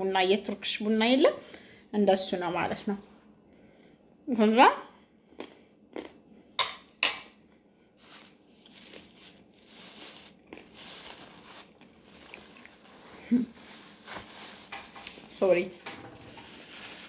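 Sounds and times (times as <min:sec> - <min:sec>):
plastic bag crinkling: 0:08.0 - 0:15.6, 0:16.3 - 0:17.0.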